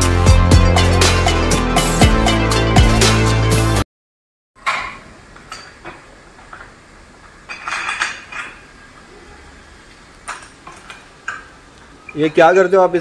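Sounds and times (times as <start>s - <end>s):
metal tools clinking on metal lid: 7.5s - 8.7s.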